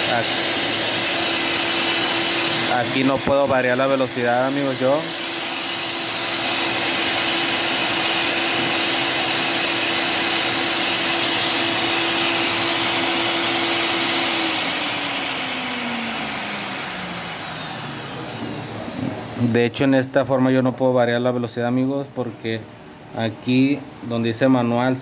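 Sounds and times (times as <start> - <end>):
blender motor whining: 0.0 - 19.6.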